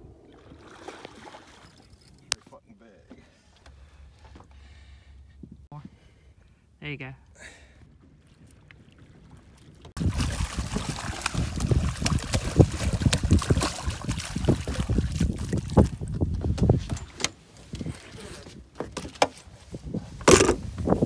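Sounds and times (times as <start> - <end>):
fish thrashing and splashing: 10.0 - 16.2
wind buffeting microphone: 10.0 - 18.0, 19.6 - 21.0.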